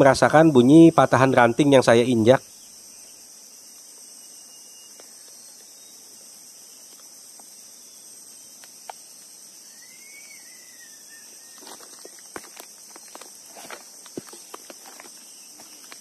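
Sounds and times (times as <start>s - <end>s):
insects chirping: 0.0s - 16.0s
twigs cracking underfoot: 11.5s - 16.0s.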